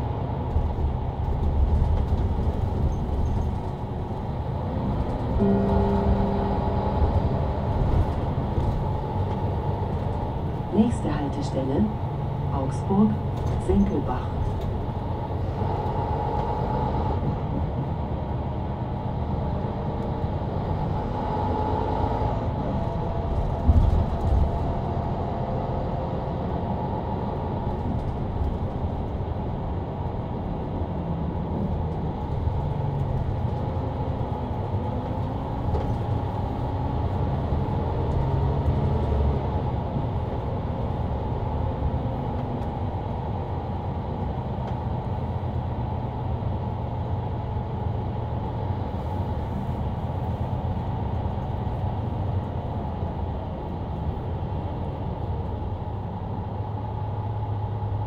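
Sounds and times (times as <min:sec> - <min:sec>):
bus diesel engine rumble: 0:00.0 - 0:58.0
road noise: 0:00.0 - 0:58.0.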